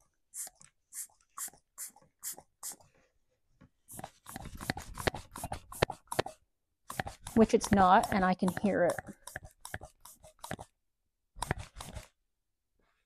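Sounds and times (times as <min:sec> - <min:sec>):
hand vacuum pump strokes: 0:03.9 - 0:10.7, 0:11.4 - 0:12.1.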